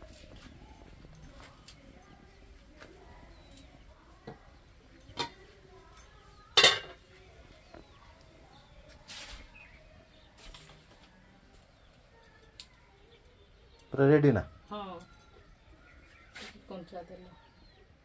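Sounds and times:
metal lid clinking and clanking: 6.6s - 7.0s.

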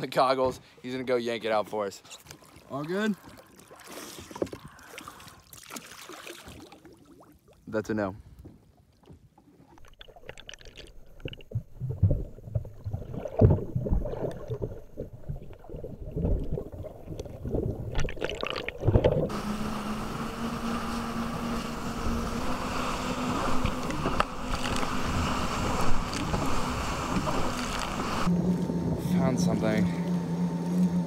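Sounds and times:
underwater sloshing and knocks: 8.4s - 19.3s
wind and spray: 19.2s - 29.0s
jet ski engine droning: 19.3s - 31.0s.

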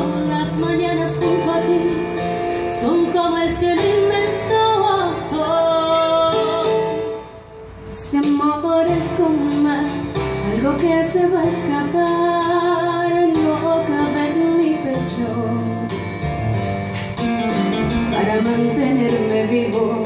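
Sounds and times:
woman singing: 0.0s - 7.1s, 7.9s - 15.9s, 18.1s - 20.0s
accompaniment with steady beat: 15.9s - 18.6s.

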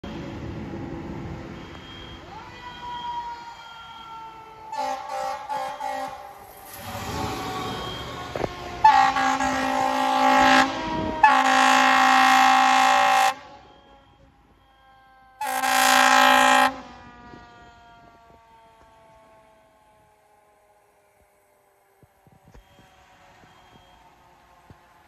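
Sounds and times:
fire truck air horn blasts: 3.6s - 14.4s, 15.4s - 18.3s
siren pitch sliding down: 6.7s - 11.6s.

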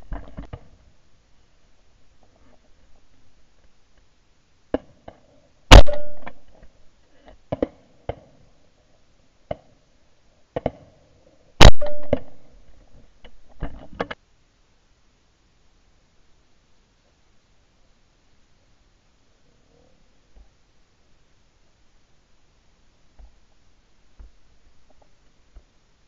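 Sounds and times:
shotgun shots: 5.7s - 6.4s, 11.6s - 12.4s.

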